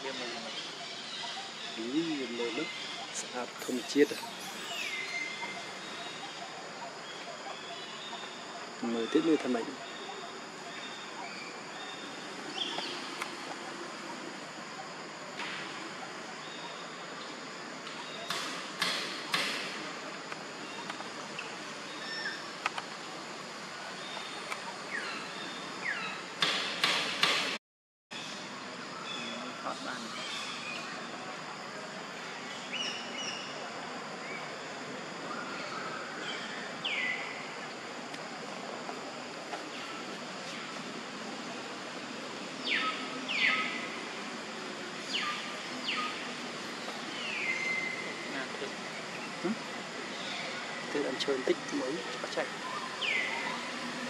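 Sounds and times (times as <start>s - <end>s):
background hiss: 0.0s - 27.6s, 28.2s - 54.0s
mynas whistling calls: 0.1s - 13.2s, 45.0s - 50.9s, 51.5s - 54.0s.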